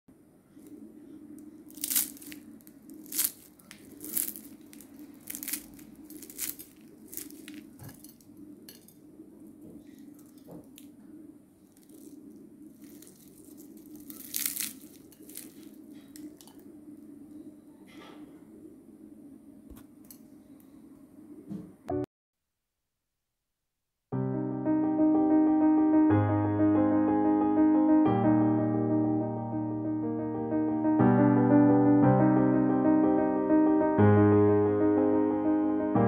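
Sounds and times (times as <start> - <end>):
steady low hum: 0.1 - 22.1
pastry shells crackling and crunching: 0.5 - 17.5.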